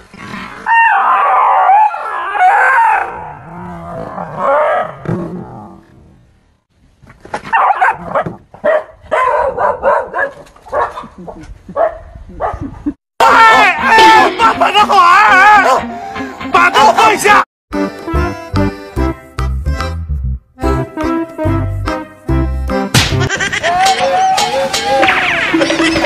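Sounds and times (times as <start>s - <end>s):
dog yelping and howling: 0.7s - 3.3s
dog barking: 7.5s - 11.1s, 11.8s - 12.6s.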